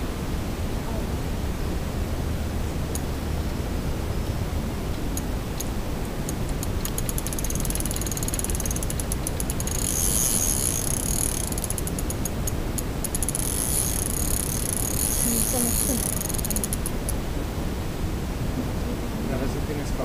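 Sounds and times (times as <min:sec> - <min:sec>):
fishing reel drag clicking: 0:05.2 - 0:17.2.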